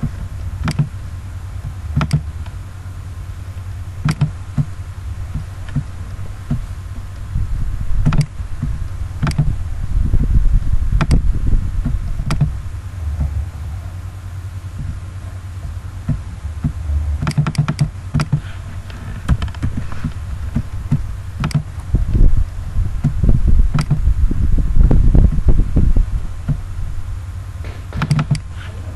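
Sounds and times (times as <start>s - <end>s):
steady low rumble: 0.0s - 28.9s
computer mouse clicks: 0.6s - 0.9s, 2.0s - 2.6s, 8.0s - 8.3s, 9.2s - 9.5s, 17.2s - 18.5s, 21.4s - 21.7s, 23.7s - 24.0s, 28.0s - 28.5s.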